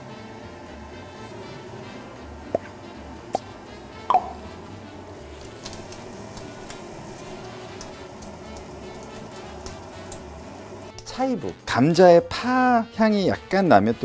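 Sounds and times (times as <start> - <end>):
bacon sizzling in a pan: 5.2 - 11.5
fat crackling and popping: 5.3 - 11.1.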